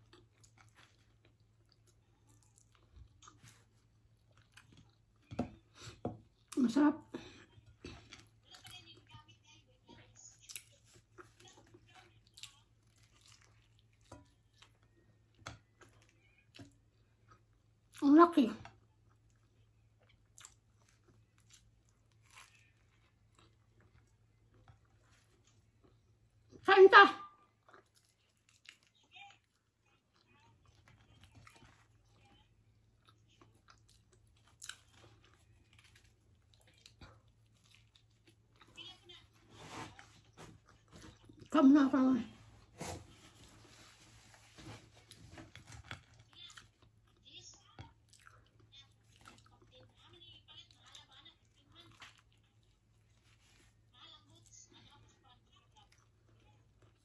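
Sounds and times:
crunchy chewing: 0:00.0 - 0:06.6, 0:10.2 - 0:18.0, 0:18.7 - 0:26.5, 0:27.4 - 0:41.5, 0:42.6 - 0:49.8.

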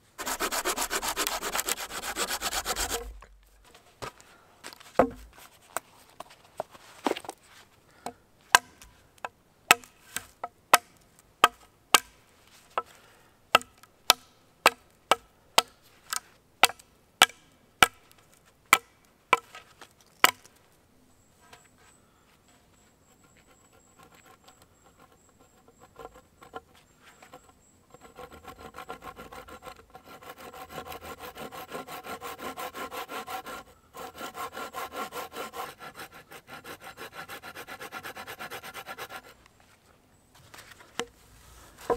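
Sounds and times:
hand saw cutting wood: 0:00.2 - 0:03.3, 0:28.0 - 0:39.4
sharp wooden knocks: 0:05.0 - 0:05.3.

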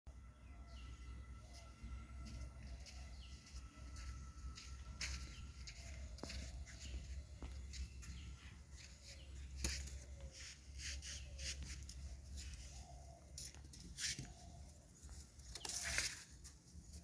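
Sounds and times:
stick and blade tapping and scraping: 0:08.9 - 0:12.6, 0:15.3 - 0:17.0.

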